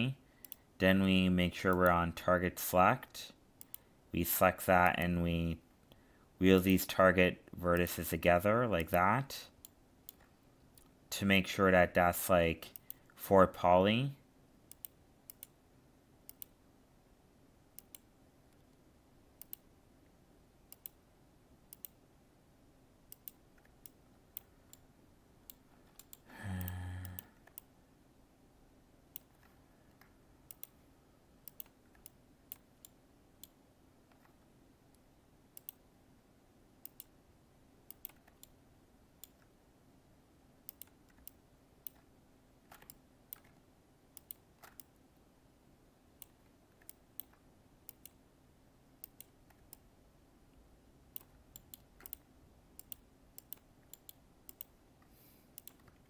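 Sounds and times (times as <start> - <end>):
faint steady hum: 0.0 - 56.0
computer mouse clicks: 0.4 - 0.7, 3.6 - 3.9, 9.6 - 11.0, 12.7 - 13.2, 14.7 - 15.6, 16.3 - 16.6, 17.8 - 18.7, 19.4 - 19.7, 20.7 - 21.0, 21.7 - 22.0, 23.1 - 27.7, 29.1 - 30.8, 31.4 - 35.0, 35.6 - 35.8, 36.8 - 37.2, 37.9 - 38.6, 39.2 - 39.5, 40.7 - 42.1, 42.7 - 43.6, 44.2 - 45.0, 46.2 - 48.2, 49.0 - 49.9, 51.1 - 54.8, 55.6 - 56.0.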